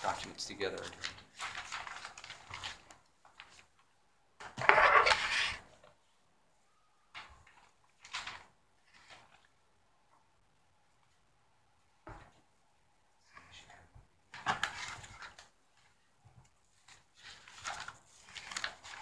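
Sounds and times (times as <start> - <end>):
paper shuffling and rustling: 0.0 - 5.9, 7.1 - 9.6, 14.3 - 19.0.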